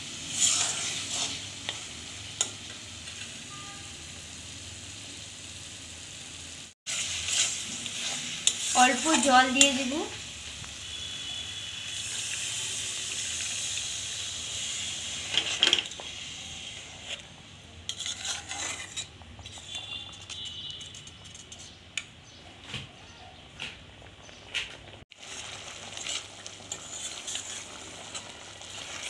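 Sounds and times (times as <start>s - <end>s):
water sizzling in hot pan: 0.0s - 20.2s, 24.9s - 29.0s
metal spatula scraping pan: 0.3s - 3.8s, 6.9s - 9.9s, 15.1s - 21.8s, 26.0s - 29.0s.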